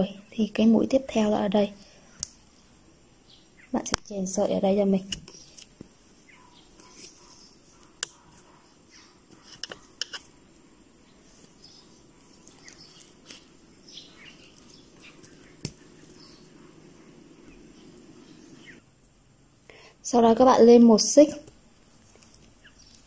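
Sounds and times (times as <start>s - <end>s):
faint bird chirps: 0.0s - 18.9s, 22.4s - 23.0s
low room hum: 0.0s - 23.0s
yarn rustling: 11.2s - 18.6s.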